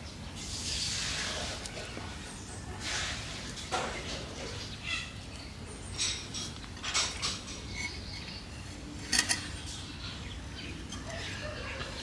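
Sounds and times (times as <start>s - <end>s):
soil scraping ceramic pot: 6.2s - 8.4s.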